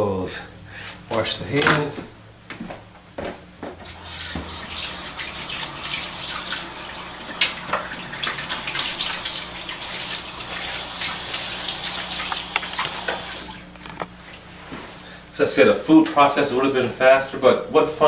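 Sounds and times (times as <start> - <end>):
tap water running and splashing: 3.8 - 13.8.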